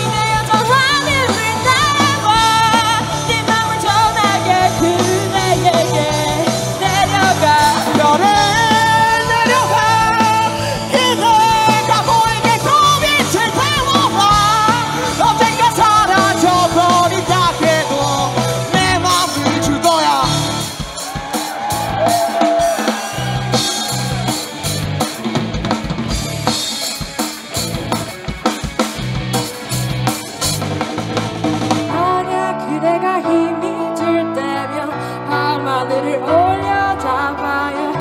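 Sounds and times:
rock band playing: 0:00.0 - 0:38.0.

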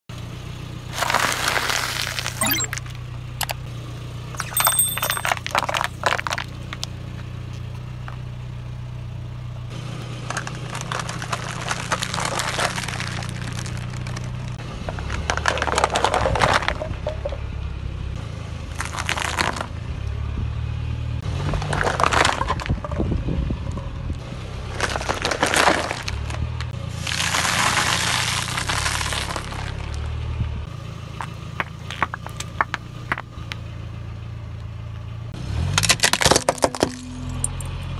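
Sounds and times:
car engine humming low: 0:00.1 - 0:27.2, 0:28.5 - 0:35.8
tyre crushing plastic and cardboard: 0:24.8 - 0:26.2.

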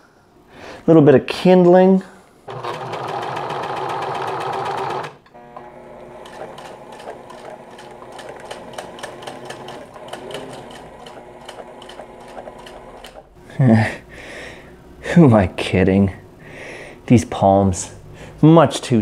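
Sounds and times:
sewing machine needle ticking: 0:02.5 - 0:05.2, 0:06.2 - 0:13.3
serger running: 0:02.5 - 0:13.4.

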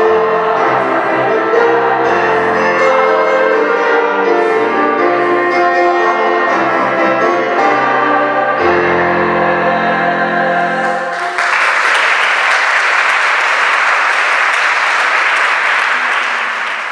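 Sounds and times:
digital piano: 0:00.0 - 0:11.1
choir singing: 0:00.0 - 0:12.7
audience applauding: 0:10.9 - 0:16.9.

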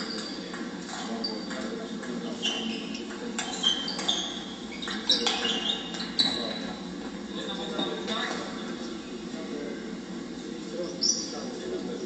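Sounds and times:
shoes squeaking on floor: 0:00.0 - 0:01.7, 0:02.3 - 0:08.5
steady hall hum: 0:00.0 - 0:12.0.

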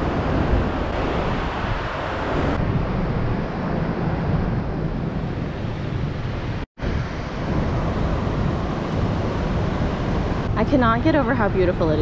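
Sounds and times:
waterfall roaring: 0:00.0 - 0:02.6.

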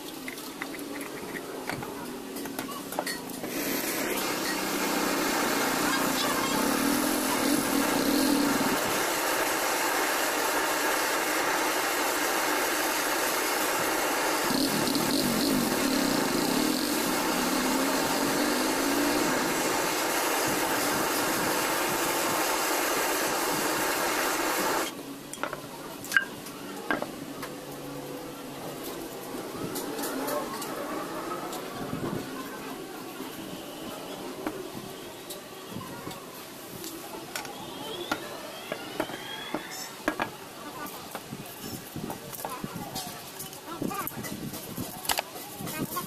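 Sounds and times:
blow torch hissing: 0:03.4 - 0:25.0.

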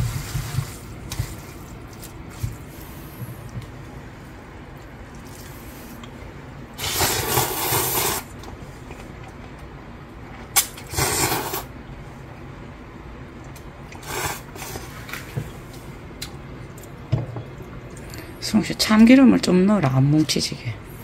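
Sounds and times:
man slurping noodles: 0:06.8 - 0:08.3, 0:10.8 - 0:11.7, 0:13.9 - 0:14.9.

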